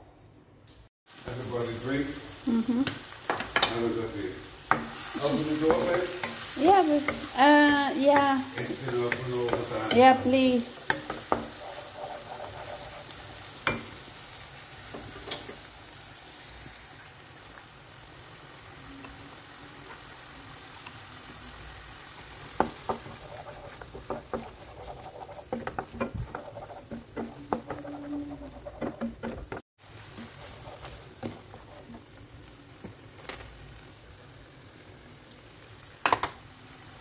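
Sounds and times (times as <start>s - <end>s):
paste sizzling: 1.1s - 37.0s
spatula scraping a wok: 4.7s - 14.1s, 22.5s - 32.2s
spatula knocking on pan: 8.1s - 13.9s, 22.5s - 29.6s.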